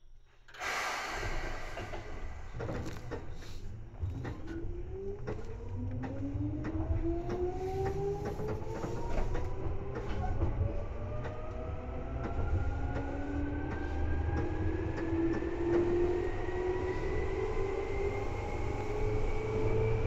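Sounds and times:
train motor whine rising: 0.5 - 3.6
low rumble of train wheels: 0.5 - 20.0.

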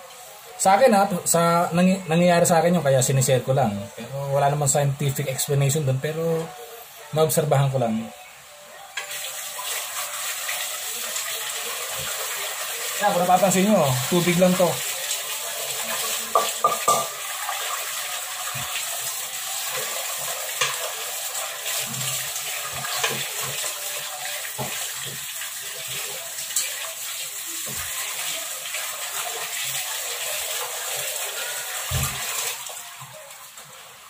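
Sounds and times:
water running and splashing in sink: 9.0 - 34.0
pot knocking against sink: 16.3 - 17.2.

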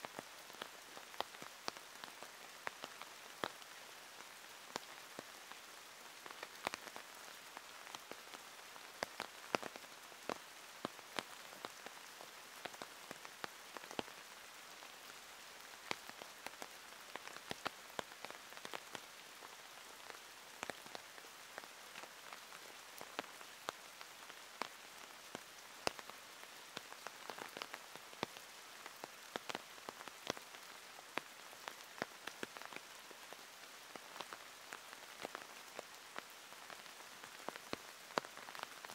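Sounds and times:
raindrops ticking: 6.2 - 12.0, 21.6 - 38.9.

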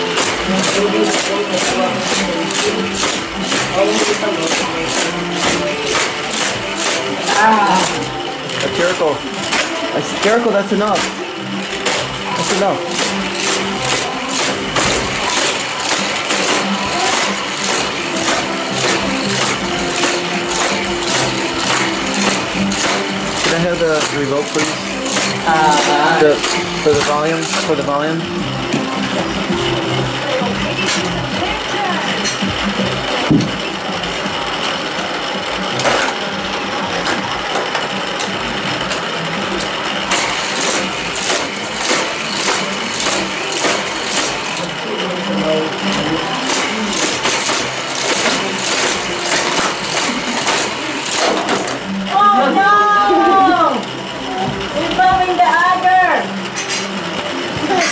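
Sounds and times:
toy track booster motor whir: 0.0 - 56.9.

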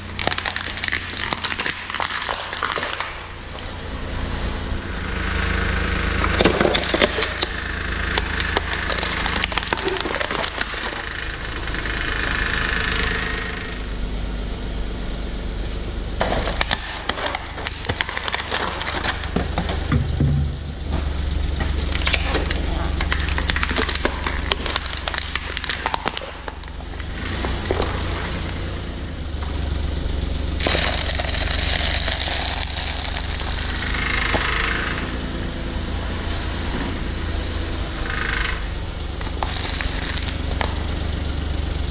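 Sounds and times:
tyre crushing plastic containers: 0.0 - 3.8, 6.2 - 11.2, 16.2 - 20.5, 21.7 - 28.7, 30.6 - 34.5, 39.2 - 40.8
car engine hum: 0.0 - 41.9.

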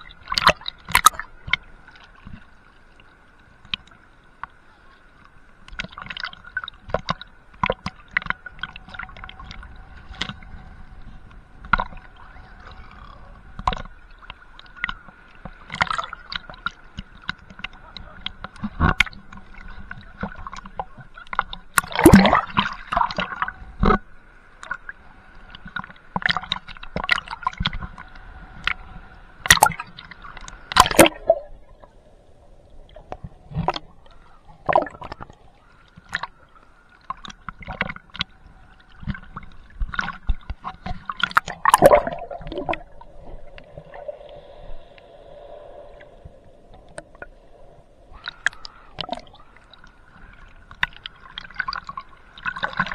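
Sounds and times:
faint steady hum: 0.0 - 52.9
sea water sloshing and gurgling: 0.0 - 52.9.

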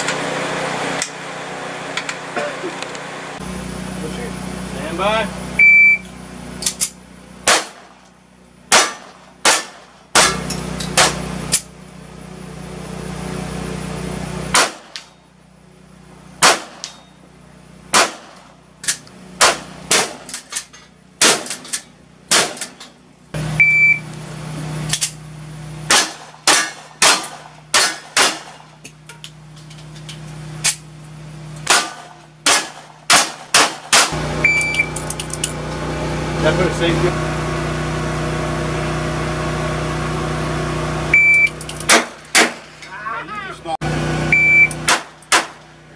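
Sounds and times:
short high timer beep: 5.6 - 6.1, 23.6 - 24.0, 41.2 - 41.5, 44.3 - 44.8
rapid gunshots: 8.7 - 10.4
steel targets ringing: 16.5 - 17.3.

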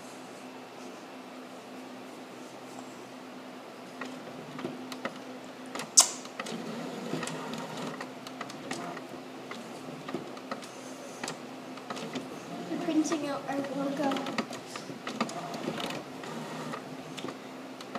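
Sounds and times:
printer whirring and clicking: 4.0 - 17.9.

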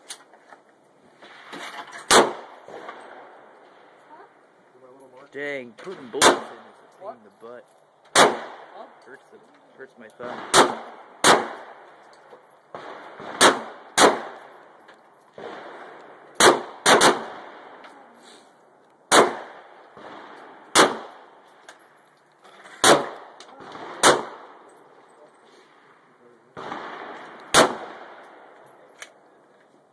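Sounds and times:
gunshots with echo: 5.9 - 6.8, 8.1 - 8.9, 10.2 - 11.9, 12.7 - 14.6, 15.4 - 17.8, 19.1 - 21.4, 22.8 - 24.8, 26.5 - 28.6.

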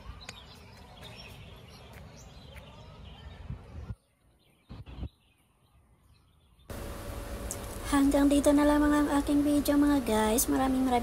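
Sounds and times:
small birds chirping: 0.0 - 7.8.

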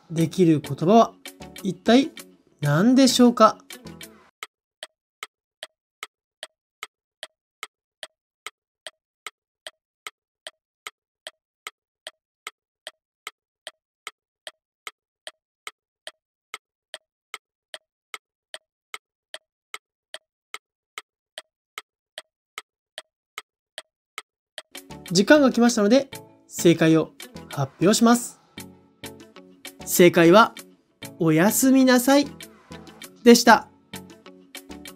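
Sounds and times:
clock ticking: 4.4 - 26.2.

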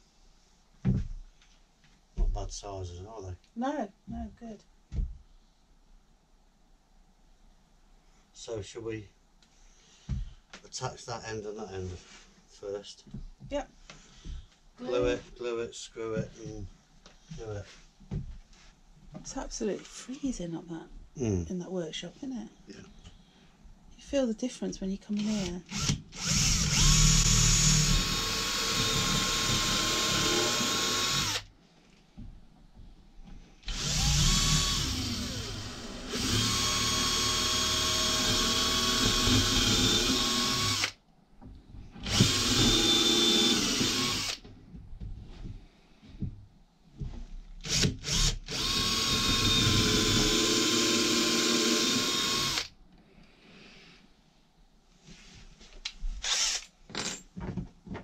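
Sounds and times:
cordless drill whining into wood: 25.2 - 31.5, 33.6 - 41.0, 42.0 - 44.4, 47.6 - 52.7, 56.2 - 56.7.

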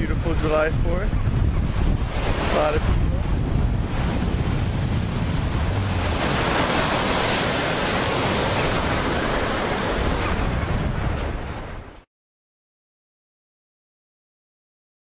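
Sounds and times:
wind rumbling on microphone: 0.0 - 12.0
surf breaking on beach: 0.1 - 12.0.

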